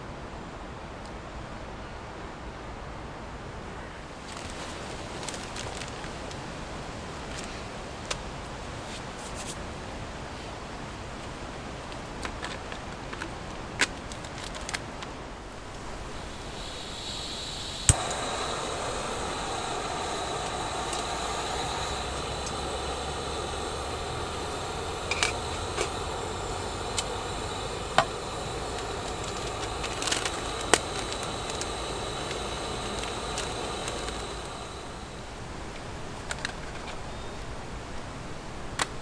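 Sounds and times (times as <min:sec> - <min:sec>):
gas stove hissing: 0:15.4 - 0:35.7
burner igniter click: 0:15.7 - 0:35.2.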